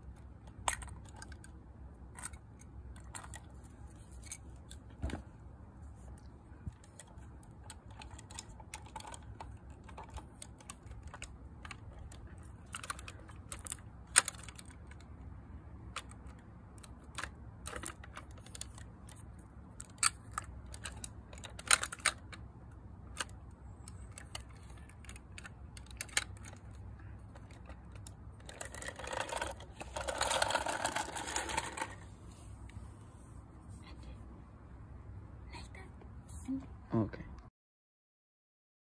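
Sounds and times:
plastic toy parts clicking: 0.4 - 3.6, 6.7 - 15.3, 15.9 - 32.0.

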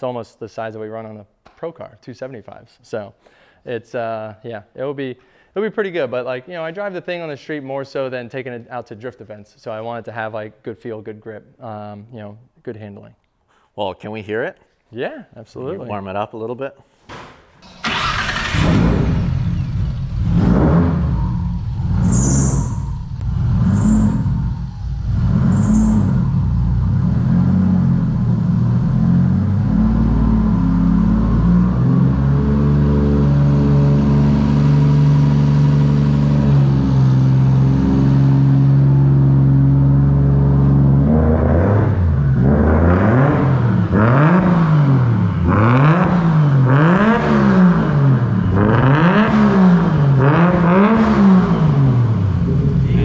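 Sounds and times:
car engine idling: 17.6 - 29.0, 52.0 - 53.0
car engine revving: 17.6 - 53.0.

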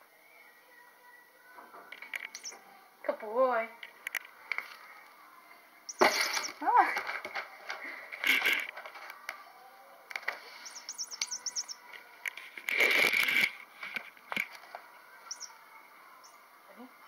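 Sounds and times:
toy bird chirps: 2.3 - 2.6, 5.9 - 6.6, 10.6 - 11.9, 15.3 - 15.6.

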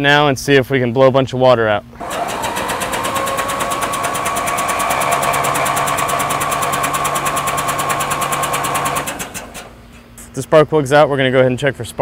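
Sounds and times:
electric starter cranking engine: 2.0 - 10.0.

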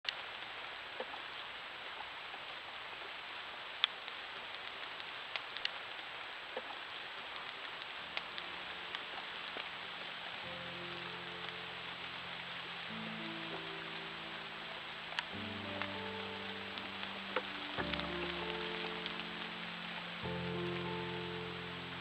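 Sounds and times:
raindrops ticking: 0.1 - 22.0
steady rain hiss: 0.1 - 22.0
soft music: 7.8 - 22.0.

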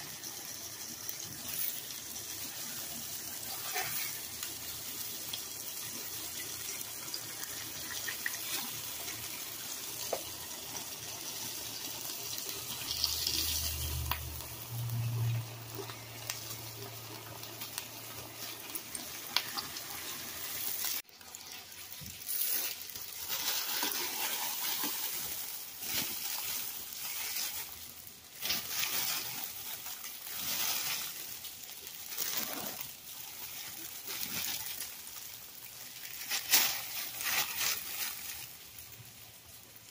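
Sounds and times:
patties sizzling on a griddle: 0.0 - 39.9.

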